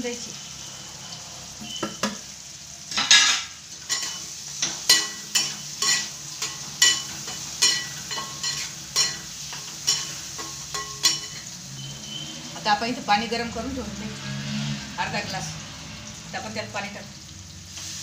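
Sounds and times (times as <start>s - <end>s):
masala sizzling: 0.0s - 18.0s
steel spatula scraping a pan: 2.9s - 12.6s.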